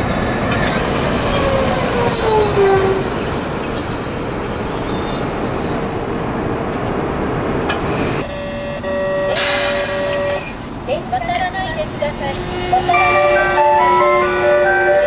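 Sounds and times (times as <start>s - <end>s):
tram inverter whine: 0.0s - 15.0s
wheels rumbling over track: 0.0s - 15.0s
thin high wheel squeals: 1.4s - 6.6s.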